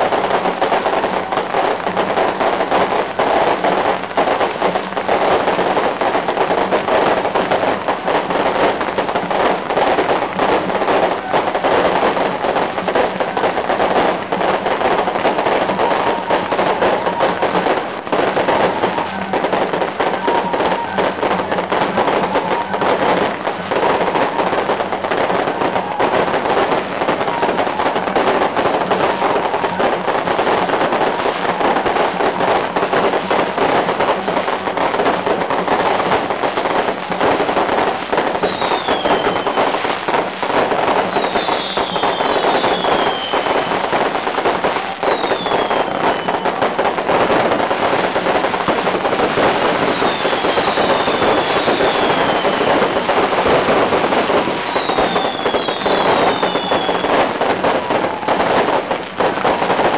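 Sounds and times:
firecrackers crackling: 0.0 - 59.9
falling firework whistles: 38.1 - 46.9, 49.2 - 58.9.

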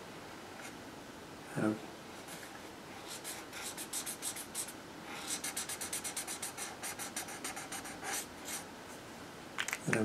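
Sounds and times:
marker scratching on paper: 2.3 - 8.7.

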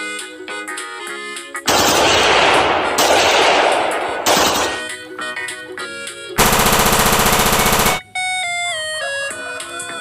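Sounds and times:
rifle firing automatic bursts: 1.7 - 4.9, 6.4 - 8.0
toy gun electronic machine-gun sound: 6.4 - 8.0.

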